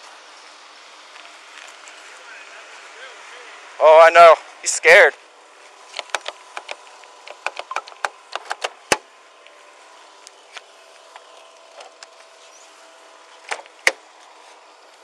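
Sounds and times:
car door unlatching: 13.4s - 14.0s.

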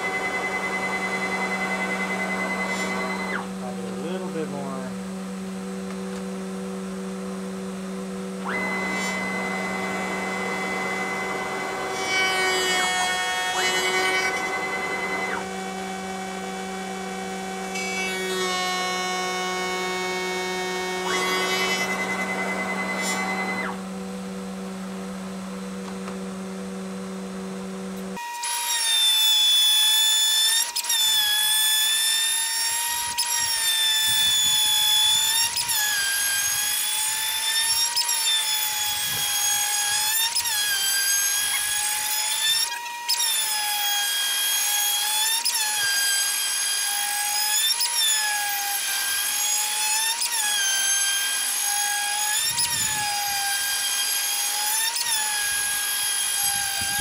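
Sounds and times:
steady low hum: 0.0s - 17.8s, 19.5s - 28.2s
router spindle high whine: 0.0s - 57.0s.

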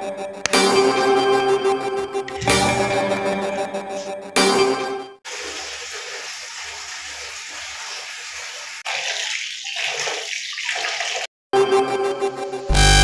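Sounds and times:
water running into plastic bucket: 5.3s - 11.3s.

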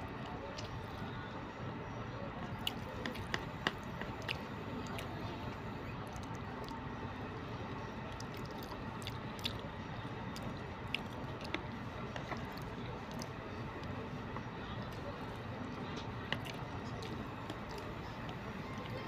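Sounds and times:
person chewing: 8.2s - 9.6s.

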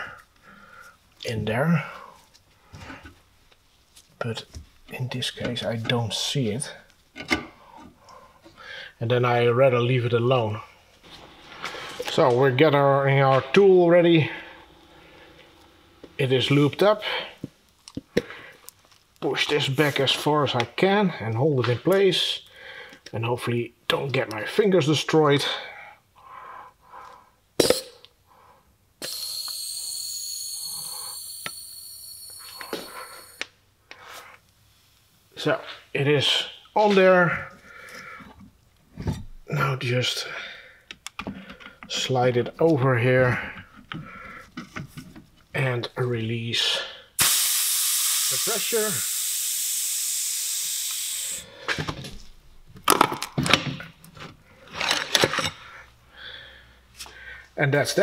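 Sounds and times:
compressed air hissing with whistle: 29.0s - 33.4s, 47.2s - 51.5s.

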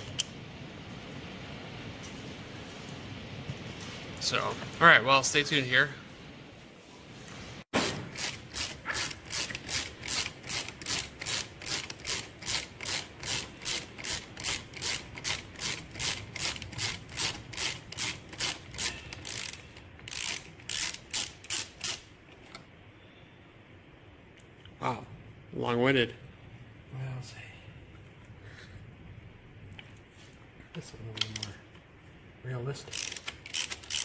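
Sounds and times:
ratchet wrench clicking: 8.1s - 22.1s, 32.9s - 34.0s.

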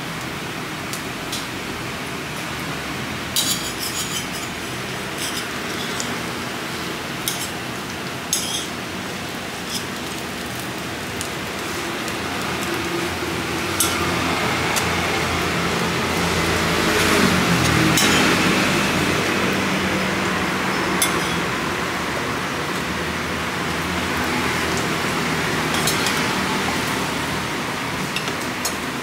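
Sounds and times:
metal spatulas scraping griddle: 3.4s - 6.2s, 7.2s - 7.6s, 8.3s - 8.7s, 9.6s - 10.0s, 16.8s - 18.4s.

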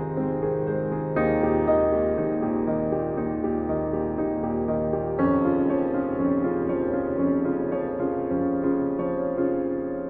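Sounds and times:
slow gentle piano music: 0.0s - 10.0s.

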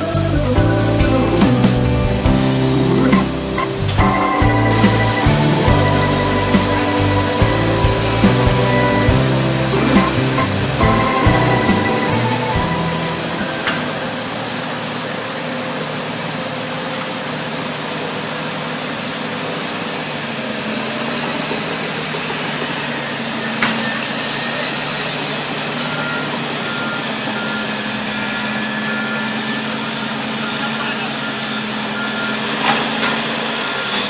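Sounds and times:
heavy diesel engines running: 0.0s - 34.0s
reversing alarm beeping: 0.6s - 15.6s, 22.5s - 34.0s.

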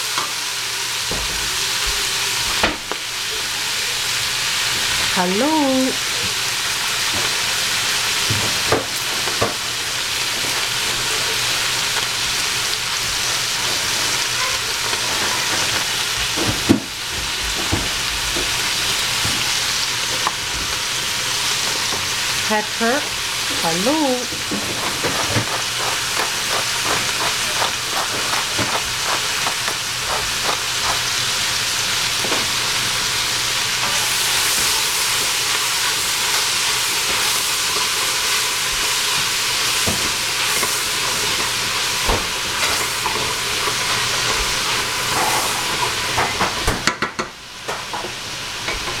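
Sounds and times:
cabbage sizzling in oil: 0.0s - 49.0s
spatula scraping a pot: 24.3s - 31.2s.

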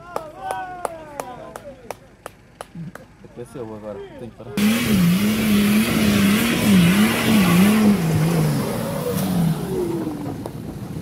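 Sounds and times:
engine revving: 4.6s - 10.5s.

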